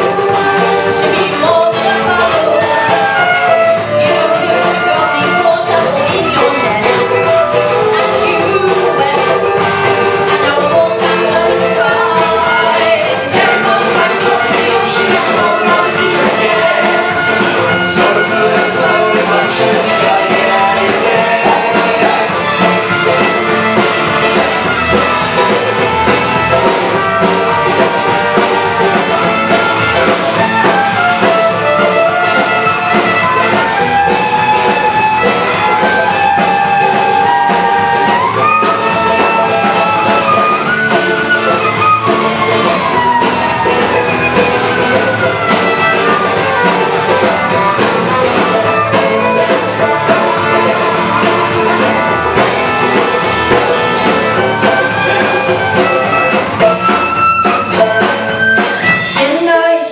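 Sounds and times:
strummed acoustic guitar: 0:00.0 - 0:59.4
sliding melody line: 0:00.0 - 0:59.5
folk band playing: 0:00.0 - 0:59.9.

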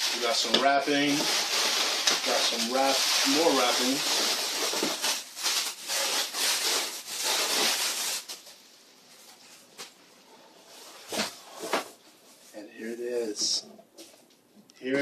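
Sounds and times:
plastic wrap crinkling: 0:00.0 - 0:10.0.

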